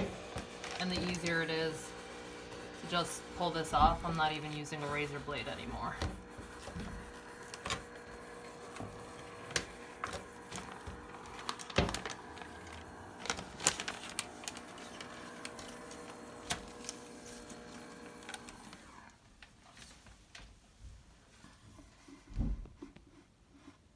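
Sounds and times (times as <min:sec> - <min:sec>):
garment steamer humming: 0:00.0 - 0:19.2
contact paper crackling and rustling: 0:00.0 - 0:20.6.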